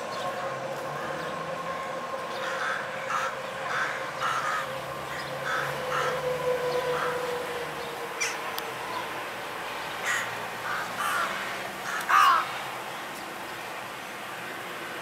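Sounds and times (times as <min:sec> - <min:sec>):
street background noise: 0:00.0 - 0:15.0
crows cawing: 0:02.4 - 0:08.4, 0:10.0 - 0:12.6.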